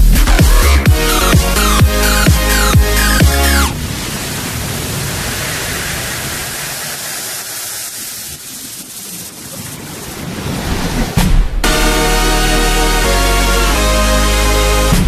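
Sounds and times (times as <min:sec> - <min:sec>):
heavy bass hit: 0:00.0 - 0:03.7
white-noise sweep: 0:00.0 - 0:10.6.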